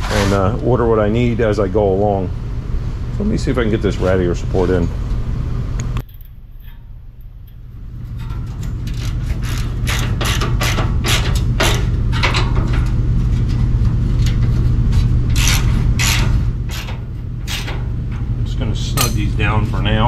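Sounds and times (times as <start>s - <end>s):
steady low hum: 0.0s - 20.0s
hand ratchet wrench ratcheting: 8.2s - 12.3s.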